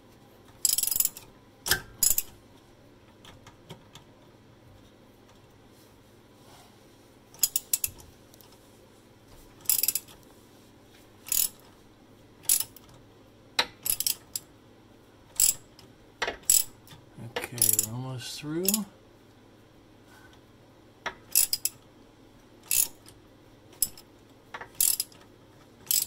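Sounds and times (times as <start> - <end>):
socket ratchet clicking: 0.6 - 2.3, 7.4 - 8.0, 9.6 - 10.2, 11.3 - 11.6, 12.5 - 12.8, 13.6 - 14.5, 15.4 - 15.6, 16.3 - 16.8, 21.3 - 21.8, 22.6 - 23.1, 23.8 - 24.0, 24.7 - 25.2.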